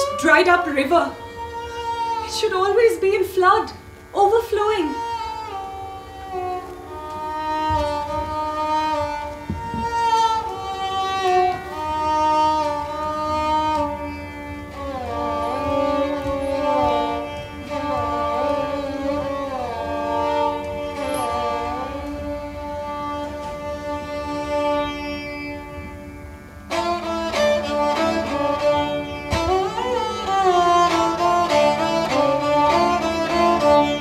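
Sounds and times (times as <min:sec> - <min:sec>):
bowed string instrument melody: 0:00.0 - 0:34.0.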